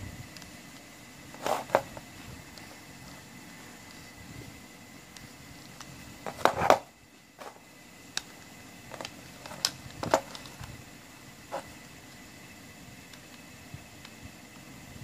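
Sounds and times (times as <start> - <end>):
plastic cassette clicks and knocks: 8.9 - 10.6.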